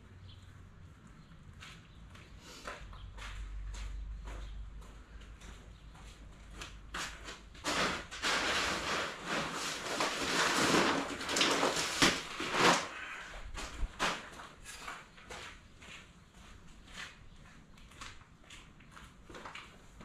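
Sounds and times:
footsteps on concrete: 0:00.4 - 0:07.6, 0:14.2 - 0:20.0
bag rustling and scraping: 0:07.6 - 0:14.9.

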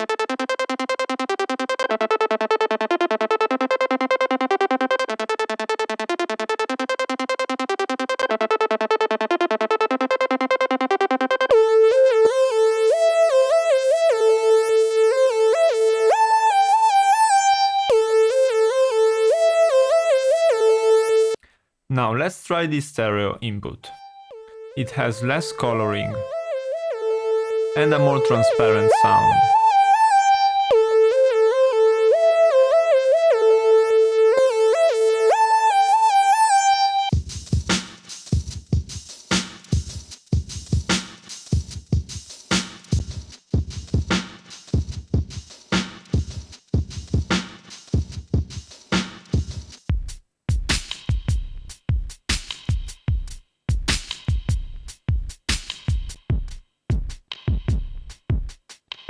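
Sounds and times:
synthesizer music: 0:00.0 - 0:21.4, 0:23.8 - 0:37.2.

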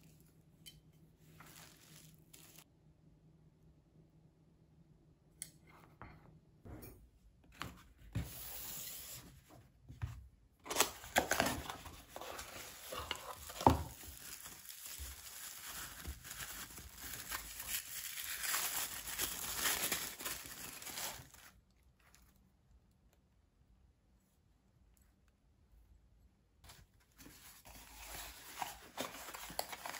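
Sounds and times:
tissue paper rustling: 0:01.2 - 0:02.7, 0:10.7 - 0:22.2, 0:26.7 - 0:29.9.

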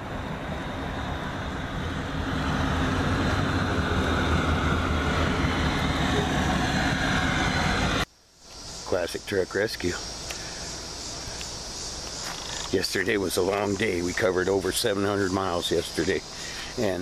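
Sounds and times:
pickup truck engine humming: 0:00.0 - 0:08.0.

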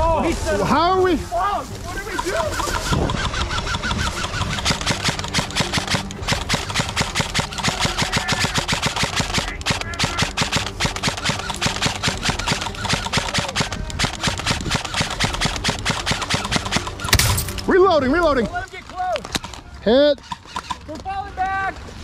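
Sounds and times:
airsoft guns firing: 0:04.2 - 0:17.6.

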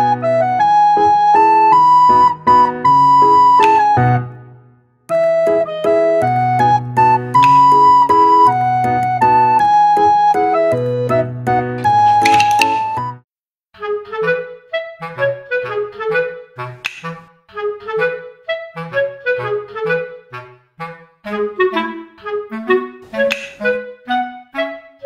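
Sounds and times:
woodwind melody: 0:00.0 - 0:13.2, 0:13.8 - 0:25.0
bouncing bass line: 0:01.8 - 0:04.4, 0:05.1 - 0:13.2.

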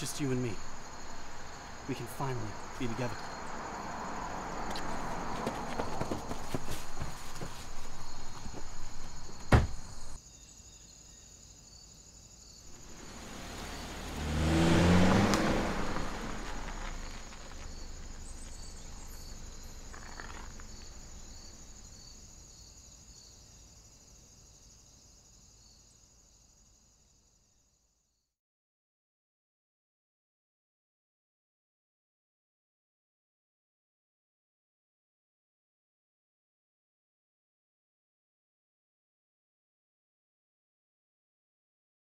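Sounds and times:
car passing: 0:00.0 - 0:10.2, 0:12.7 - 0:22.4
crickets chirping: 0:00.0 - 0:28.3
sharp knock: 0:09.4 - 0:09.8.

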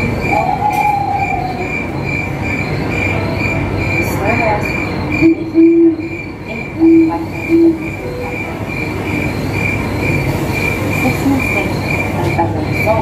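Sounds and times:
high repeating chirp: 0:01.2 - 0:10.3
short low tones: 0:06.8 - 0:09.2.

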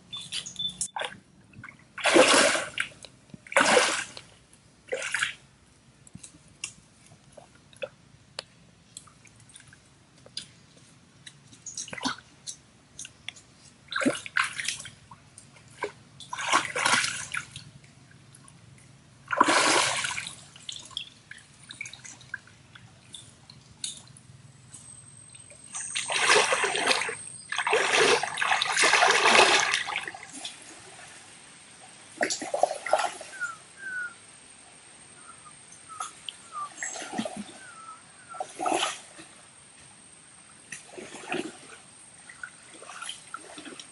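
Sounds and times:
stream water splashing: 0:00.2 - 0:04.3, 0:13.9 - 0:17.7, 0:19.2 - 0:24.0, 0:25.6 - 0:31.4, 0:32.1 - 0:34.1, 0:35.9 - 0:39.4, 0:40.7 - 0:43.9.

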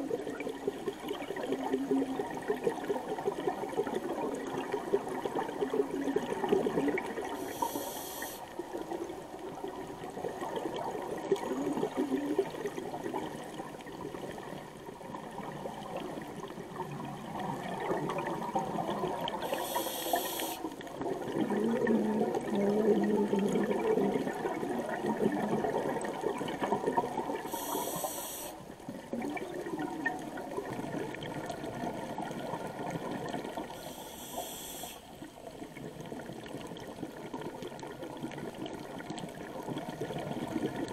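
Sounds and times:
bubbling exhalations underwater: 0:00.0 - 0:07.4, 0:09.6 - 0:14.4, 0:21.0 - 0:27.5, 0:29.0 - 0:33.7
regulator hissing inhalations: 0:07.4 - 0:08.5, 0:19.4 - 0:20.8, 0:27.5 - 0:28.6, 0:33.8 - 0:35.2.

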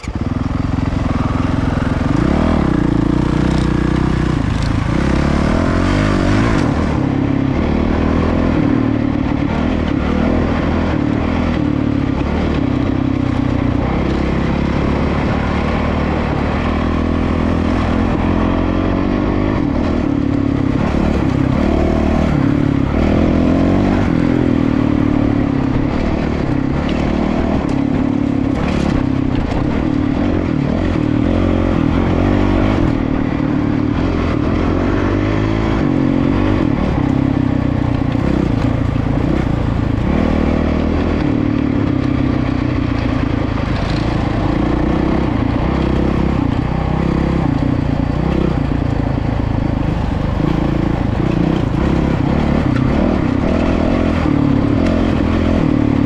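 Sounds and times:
dirt bike engines revving: 0:00.0 - 0:56.0.

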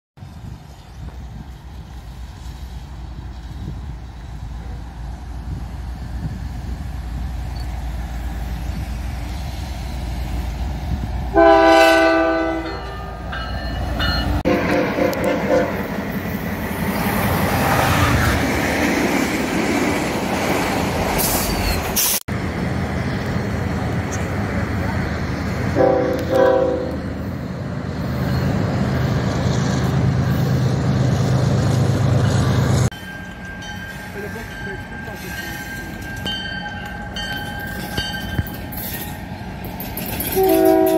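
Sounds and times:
train rumbling: 0:00.2 - 0:40.9
locomotive air horn blasts: 0:11.3 - 0:13.0, 0:14.5 - 0:15.8, 0:25.8 - 0:27.0, 0:40.4 - 0:40.9.

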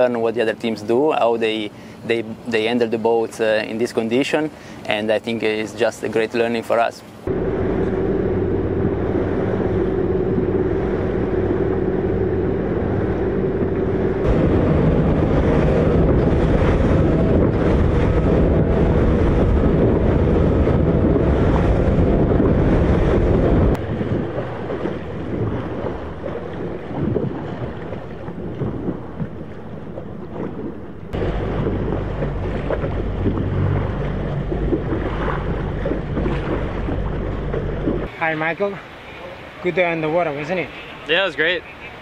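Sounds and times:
water rushing past boat: 0:00.0 - 0:42.0
wind buffeting microphone: 0:07.2 - 0:38.2
steady hum: 0:07.3 - 0:38.1.

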